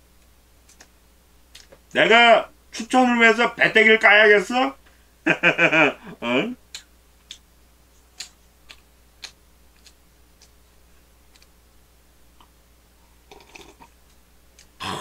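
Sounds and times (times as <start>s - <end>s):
person sipping through a straw: 13.2s - 13.9s.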